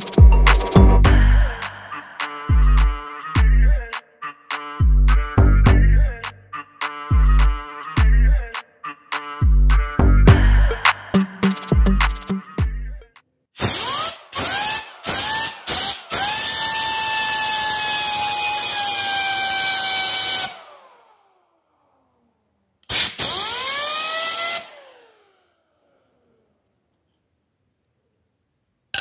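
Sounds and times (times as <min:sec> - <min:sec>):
power drill spinning fan whine: 0:13.6 - 0:22.0, 0:22.9 - 0:26.5.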